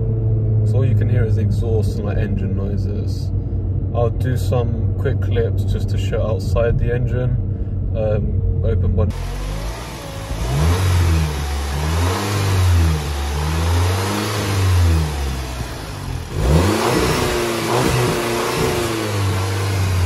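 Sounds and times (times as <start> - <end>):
car engine revving: 8.8 - 20.0.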